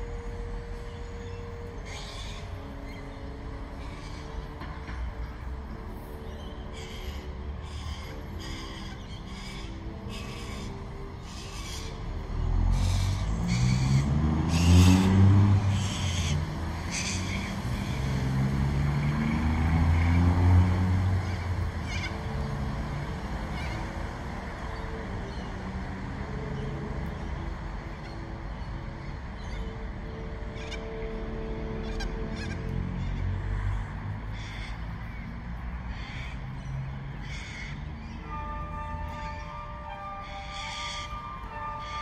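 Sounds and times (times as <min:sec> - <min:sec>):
vehicle engine passing: 0:12.0 - 0:27.9.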